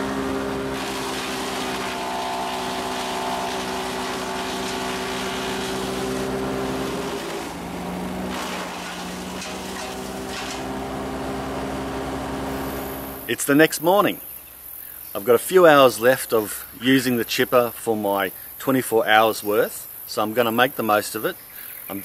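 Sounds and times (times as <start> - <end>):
wood chipper running: 0.0 - 13.4
sharp cracks of wood: 0.6 - 11.0.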